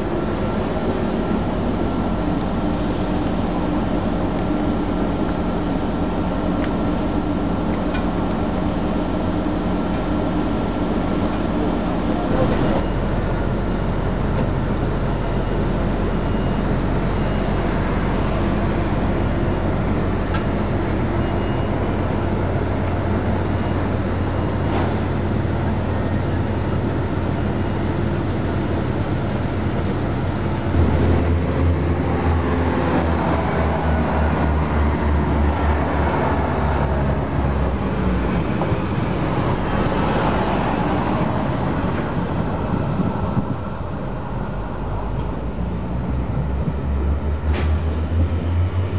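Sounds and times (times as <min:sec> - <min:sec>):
train diesel engines idling: 0:00.0 - 0:48.9
high falling whine: 0:30.6 - 0:35.3.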